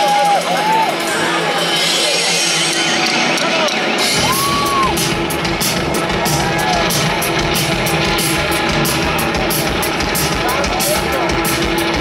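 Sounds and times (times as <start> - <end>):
drum beat: 0.0 - 12.0
rock band playing live: 0.0 - 12.0.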